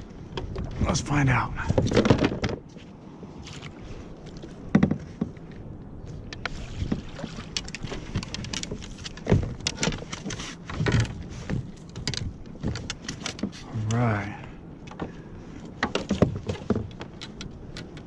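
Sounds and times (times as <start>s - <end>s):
net and gear knocking on kayak: 4.7s - 5.4s, 6.3s - 13.6s, 15.8s - 18.0s
water splashing: 6.4s - 9.6s.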